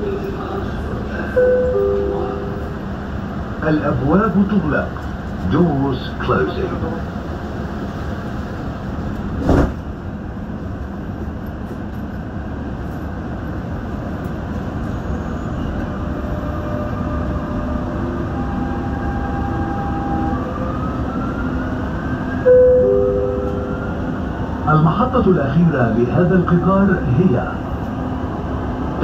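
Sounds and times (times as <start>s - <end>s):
train rumble with motor whine: 0.0s - 29.0s.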